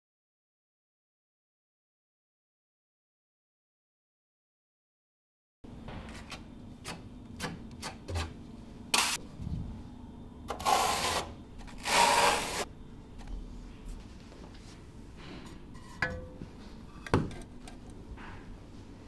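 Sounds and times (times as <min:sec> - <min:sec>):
trowel scraping mortar: 0:10.5 - 0:12.7.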